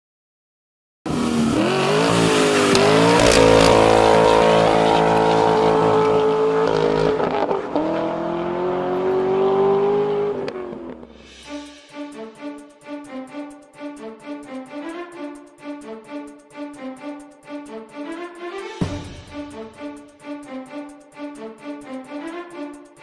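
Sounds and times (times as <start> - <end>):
race car engine revving: 1.1 - 11.2.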